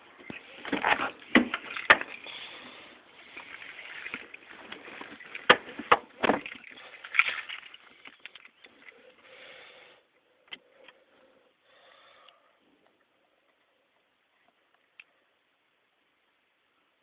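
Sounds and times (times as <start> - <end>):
rustling: 0.0 - 9.6.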